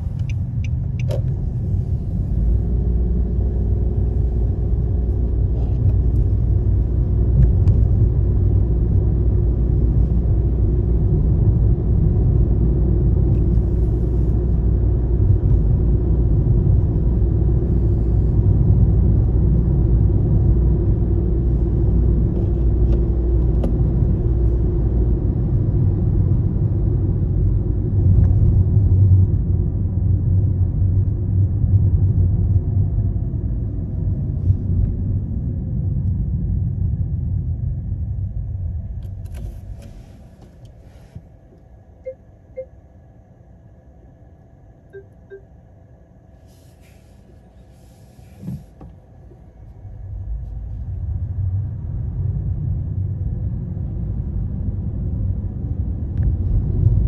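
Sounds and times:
car road and engine rumble: 0.0 - 57.0
thump: 48.4 - 48.9.

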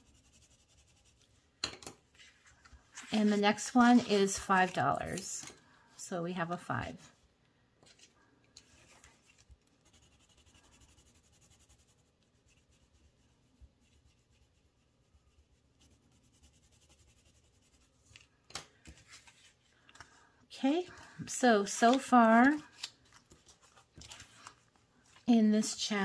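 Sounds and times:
crisp paper sounds: 21.6 - 25.3
paper money rustling: 21.6 - 25.3.

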